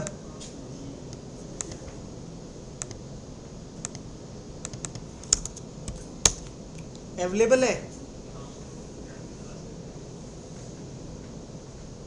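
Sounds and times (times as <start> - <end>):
keyboard keystrokes: 4.6 - 6.5.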